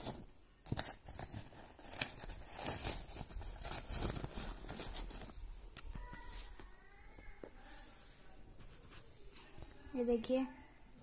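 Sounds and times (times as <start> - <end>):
fabric bag rustling: 1.0 - 5.6.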